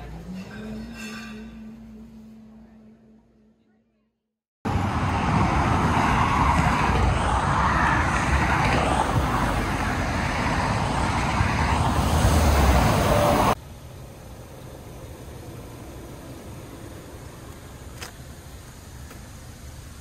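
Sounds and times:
loud road traffic rumble: 0:04.6 - 0:20.0.

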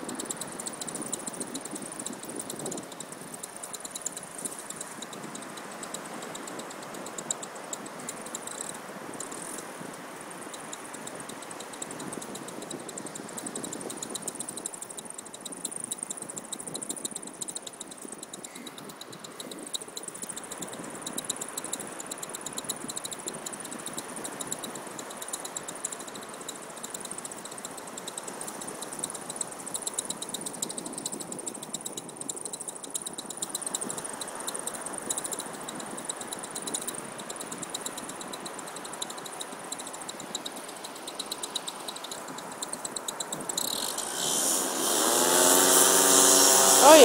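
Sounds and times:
paramotor engine buzzing: 0:43.2 - 0:47.0.

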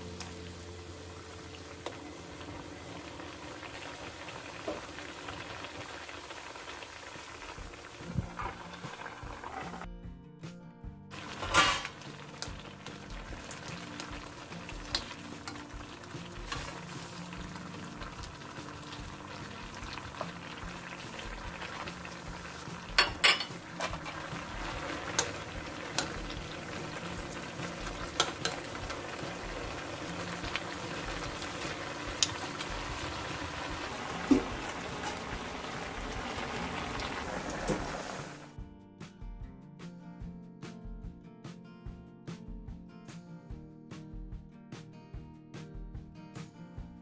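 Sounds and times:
sauce bubbling and sizzling: 0:00.0 - 0:09.9, 0:11.1 - 0:38.5.

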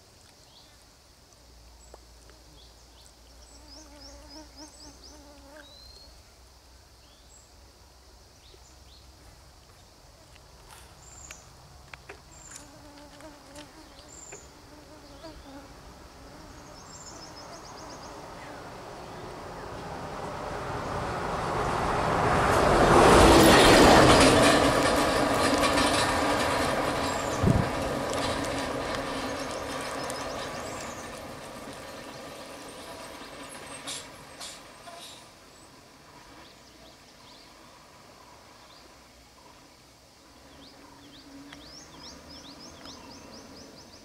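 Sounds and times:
insects buzzing: 0:00.0 - 0:21.9
vehicle approaching: 0:15.8 - 0:38.7.

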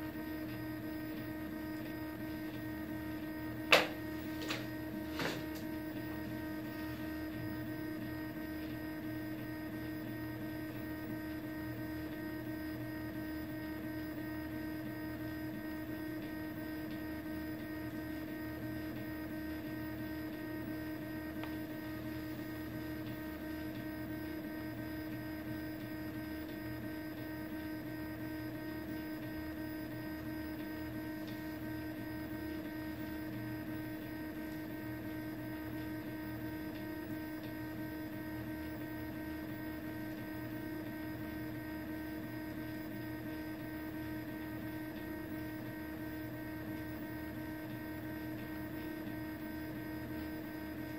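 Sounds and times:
printer humming: 0:00.0 - 0:50.9.

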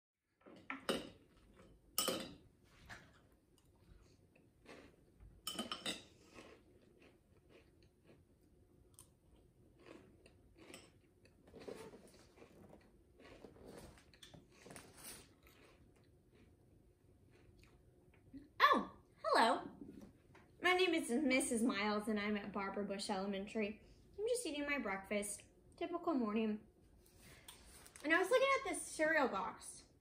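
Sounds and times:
cereal crunching: 0:06.2 - 0:16.6.

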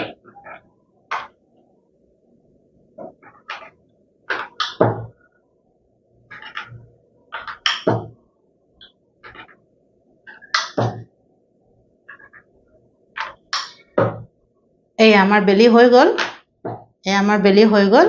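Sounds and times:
rolling pin knocking board: 0:03.0 - 0:05.2, 0:06.3 - 0:08.2.

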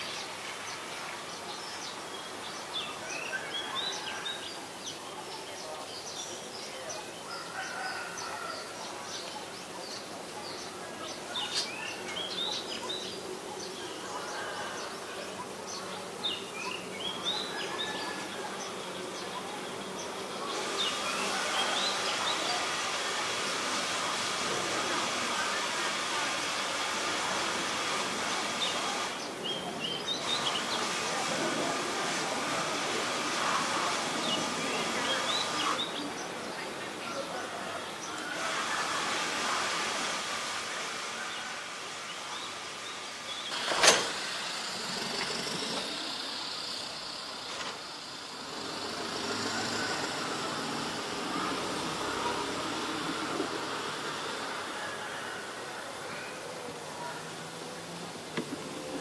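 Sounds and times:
small birds chirping: 0:00.0 - 0:24.3, 0:25.1 - 0:32.3.

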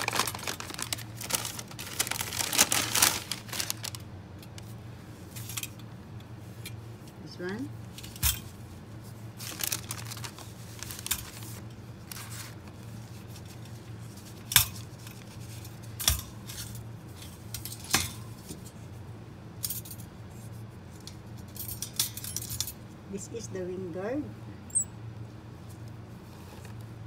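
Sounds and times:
pouch rustling: 0:00.0 - 0:04.0.

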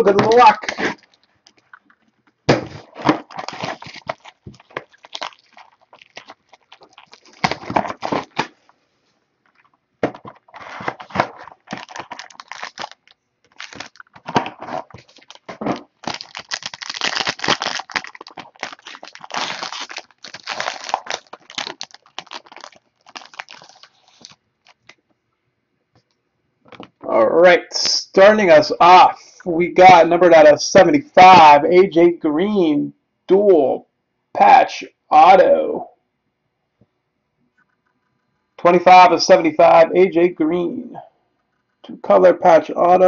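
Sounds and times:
foil wrapper crinkling and tearing: 0:00.3 - 0:01.8, 0:02.8 - 0:08.7, 0:09.5 - 0:25.0.

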